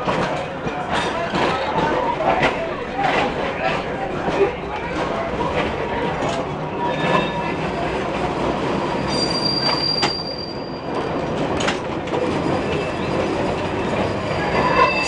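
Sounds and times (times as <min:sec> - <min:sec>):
streetcar rumbling on rails: 0:00.0 - 0:15.0
high wheel squeal: 0:06.8 - 0:07.8, 0:09.0 - 0:11.2, 0:12.4 - 0:15.0.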